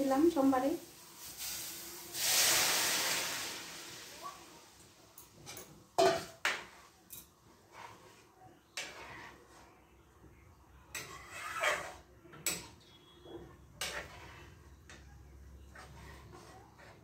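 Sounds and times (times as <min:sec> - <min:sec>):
steel ladle scraping a pot: 0:07.7 - 0:08.2, 0:08.8 - 0:09.7, 0:10.9 - 0:15.0, 0:15.6 - 0:17.0.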